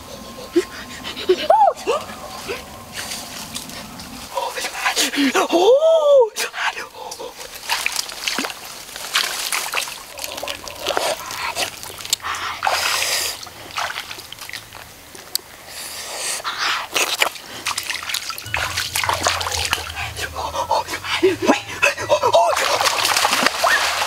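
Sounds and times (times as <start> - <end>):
wading through muddy water: 6.5 - 15.7, 17.0 - 24.0
rush of water: 7.4 - 15.4, 22.4 - 24.0.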